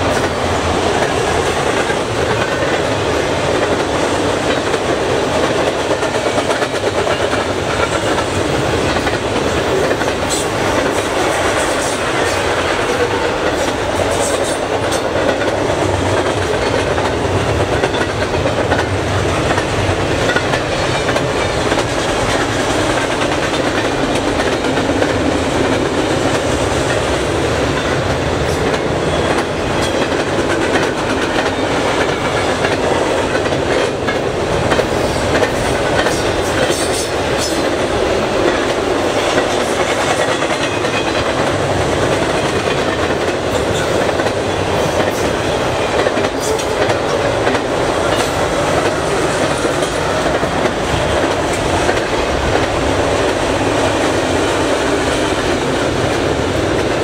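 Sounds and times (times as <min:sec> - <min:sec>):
steel wheels rumbling on rail: 0:00.0 - 0:57.0
wheels clacking over rail joints: 0:00.0 - 0:57.0.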